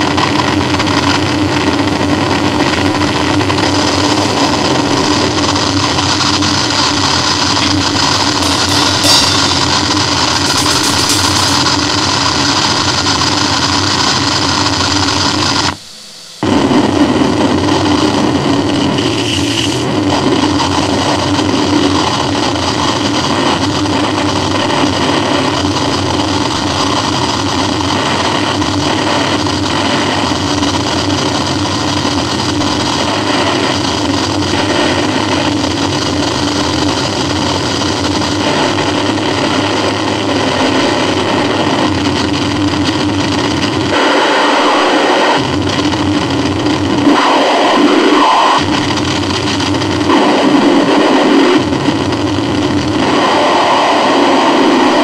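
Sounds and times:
harsh distorted noise music: 3.4s - 21.5s.

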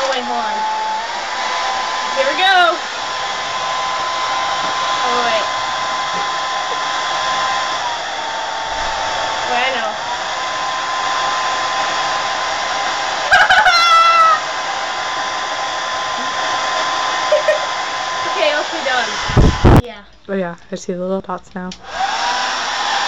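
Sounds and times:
hair dryer running: 0.0s - 19.8s, 21.7s - 23.0s.

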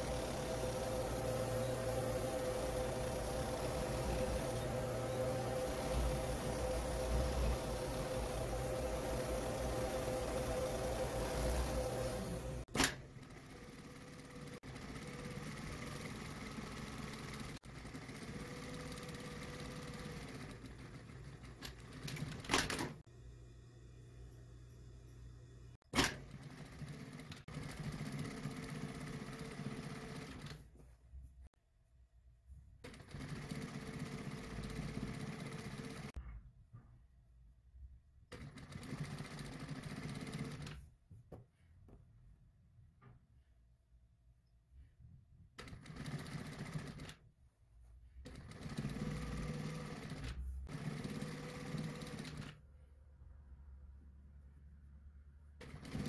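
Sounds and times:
sewing machine running: 0.0s - 22.9s, 26.0s - 30.6s, 32.8s - 36.2s, 38.3s - 40.8s, 45.6s - 47.2s, 48.2s - 52.6s, 55.6s - 56.0s.

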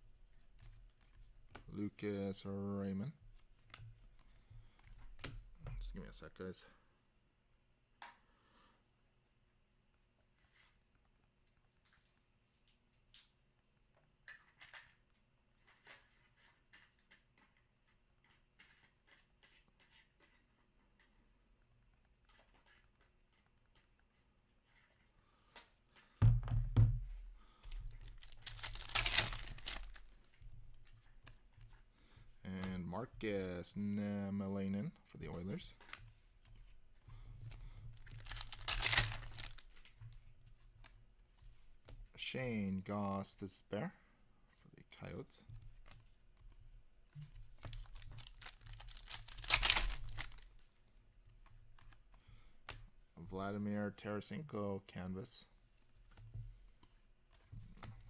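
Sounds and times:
trading cards rustling: 27.5s - 41.8s, 45.0s - 50.8s
card pack wrapper crinkling and tearing: 27.8s - 30.2s, 38.0s - 39.9s, 47.6s - 50.6s.

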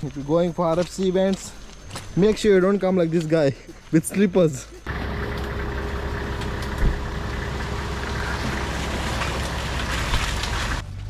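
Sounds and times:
off-road vehicle engine running: 4.8s - 11.0s.

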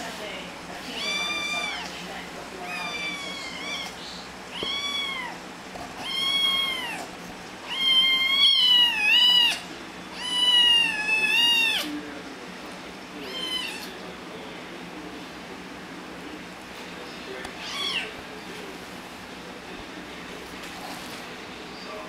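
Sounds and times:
cat meowing: 0.8s - 1.9s, 2.6s - 5.4s, 6.0s - 11.9s, 13.2s - 13.9s, 17.5s - 18.2s.

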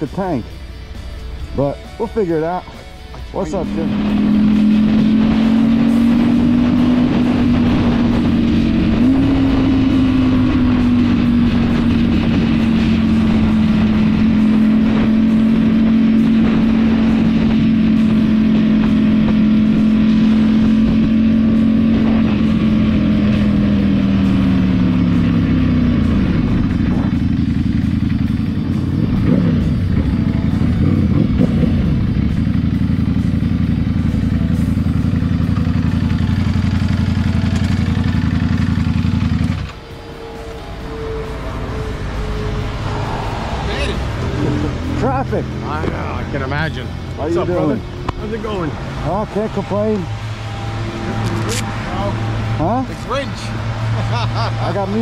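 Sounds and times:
motorcycle engine humming: 0.0s - 55.0s
wind rushing: 3.6s - 22.8s, 39.8s - 46.3s.

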